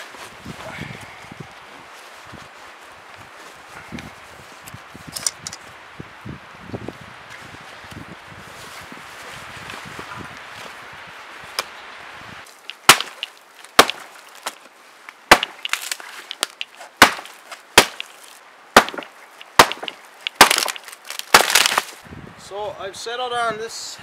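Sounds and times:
rustling through a backpack: 0.0s - 5.7s, 7.2s - 11.6s
trunk splintering: 12.6s - 14.6s, 15.3s - 22.0s
axe chopping dry wood: 12.7s - 14.6s, 15.3s - 18.2s, 18.8s - 22.0s.

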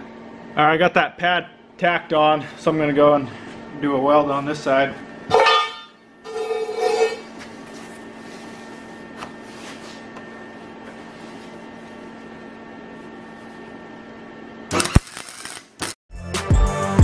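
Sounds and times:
steady low hum: 0.0s - 15.6s
welding arc crackling: 14.7s - 16.0s.

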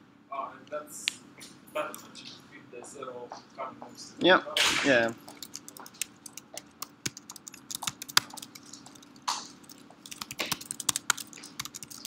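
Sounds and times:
typing on computer keyboard: 5.2s - 12.0s.

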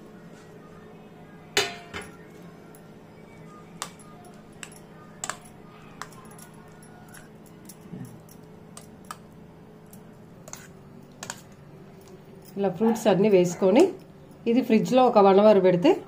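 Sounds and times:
faint steady hum: 0.0s - 16.0s
spoon clinking against metal bowl: 3.8s - 13.0s.

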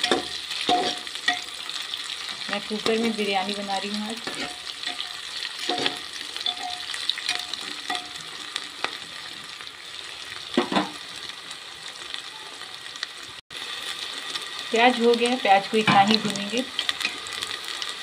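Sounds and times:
metal spoon scraping pot: 0.0s - 1.5s, 4.2s - 8.2s
onions sizzling in oil: 0.0s - 18.0s.

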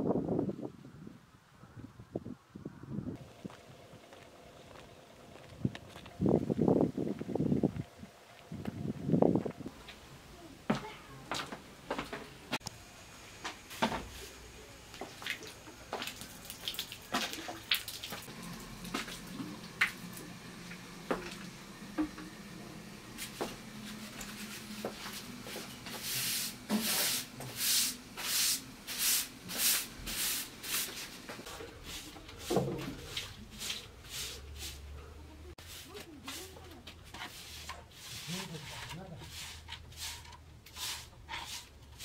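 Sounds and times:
broom sweeping earth floor: 9.7s - 42.0s.

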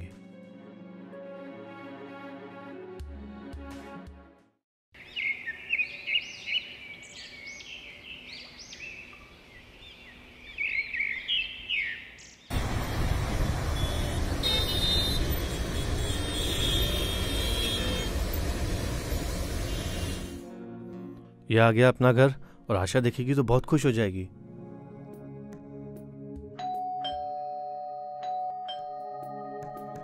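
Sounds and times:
car horns: 12.5s - 20.4s
city street traffic: 12.5s - 20.4s.

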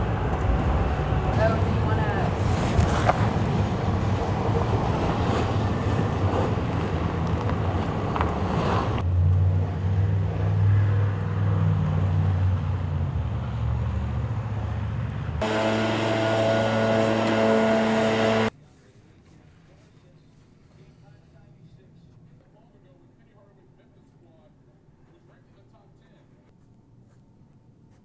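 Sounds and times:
low traffic rumble: 0.0s - 18.6s
traffic passing: 0.0s - 18.6s
snow blower engine running: 15.4s - 18.5s.

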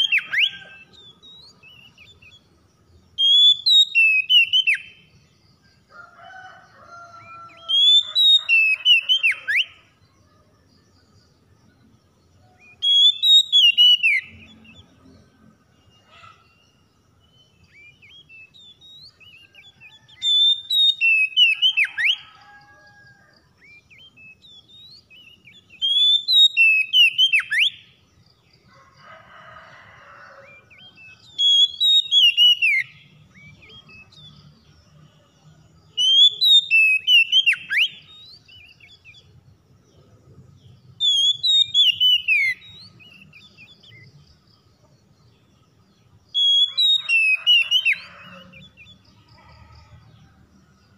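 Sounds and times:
bird singing whistled phrases: 3.2s - 5.0s, 12.6s - 14.6s, 17.7s - 22.2s, 23.6s - 27.8s, 31.0s - 34.1s, 36.0s - 39.2s, 41.0s - 44.0s, 46.4s - 48.3s.

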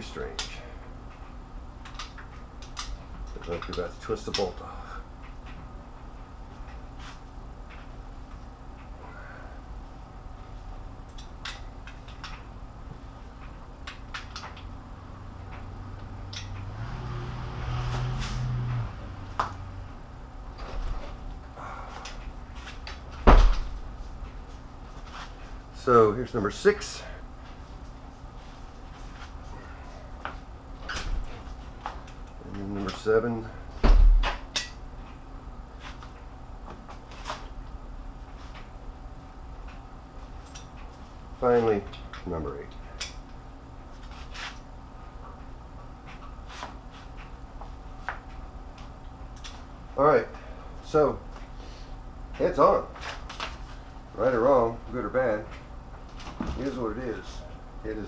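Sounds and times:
low hum: 4.6s - 32.8s.

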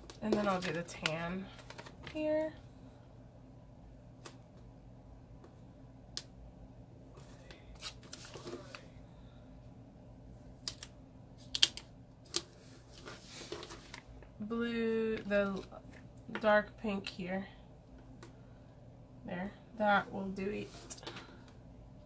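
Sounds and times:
paper rustling: 0.0s - 2.3s, 7.2s - 8.8s, 12.3s - 14.1s.

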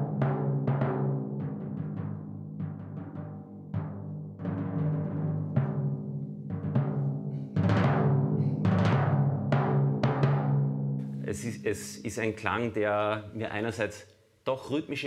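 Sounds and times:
timpani strokes: 4.4s - 12.1s.

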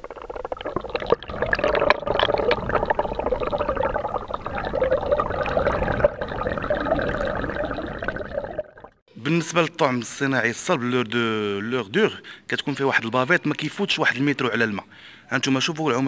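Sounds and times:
water gurgling and bubbling: 0.0s - 9.0s.

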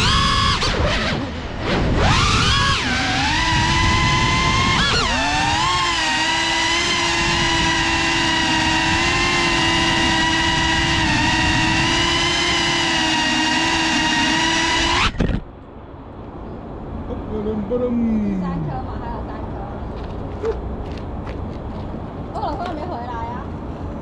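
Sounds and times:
drone motors whining: 0.0s - 15.5s.

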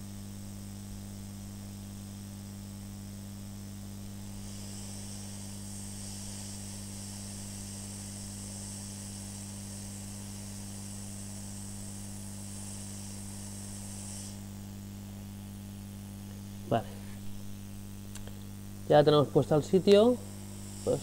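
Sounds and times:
electrical hum: 0.0s - 21.0s
hot air hiss: 4.2s - 14.7s, 18.9s - 21.0s.

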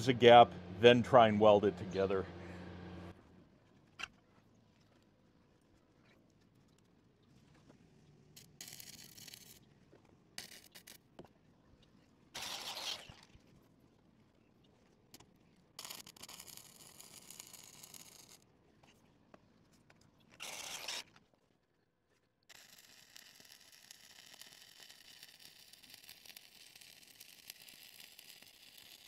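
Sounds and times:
welding arc crackling: 22.5s - 29.0s.

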